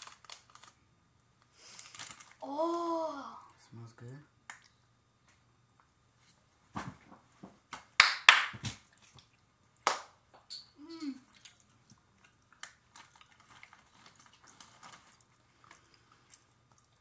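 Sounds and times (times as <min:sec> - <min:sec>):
person humming: 0:10.8 - 0:11.2
person chewing gummies: 0:11.0 - 0:17.0.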